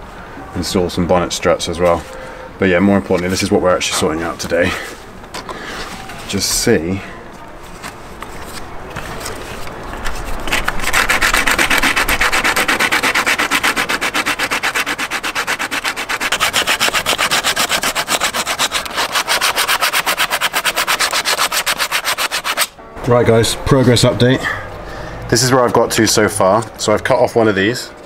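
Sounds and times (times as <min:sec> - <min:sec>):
fast rubbing strokes: 0:10.2 - 0:22.8.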